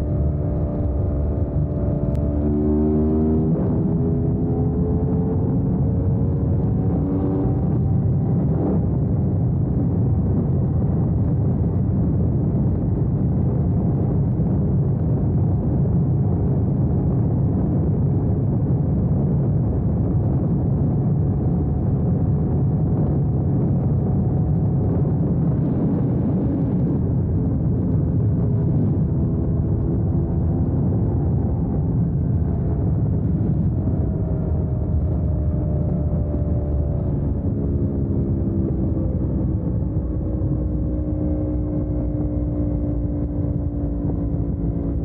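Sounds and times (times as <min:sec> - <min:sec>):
motorcycle engine at high revs: 0:00.0 - 0:09.0
wind rush on microphone: 0:00.0 - 0:45.0.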